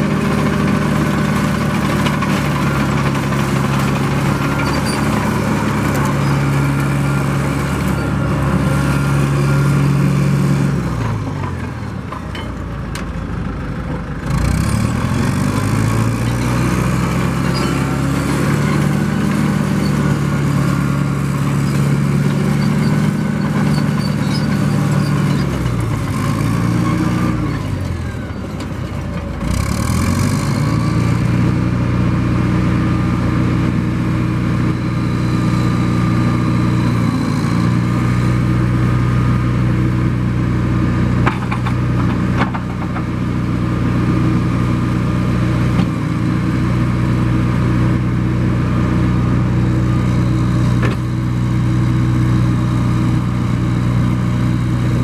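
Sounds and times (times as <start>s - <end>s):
diesel engine running under throttle: 0.0s - 55.0s.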